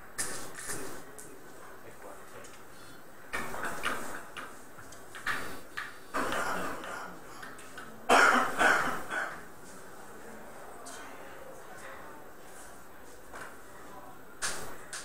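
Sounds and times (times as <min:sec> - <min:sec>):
person coughing: 0:08.1 - 0:09.4.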